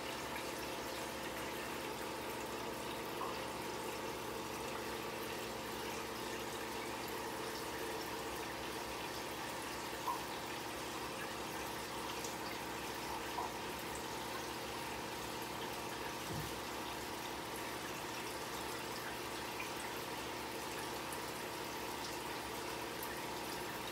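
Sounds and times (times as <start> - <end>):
aquarium equipment humming: 0.0 - 23.9
water trickling and bubbling: 0.0 - 23.9.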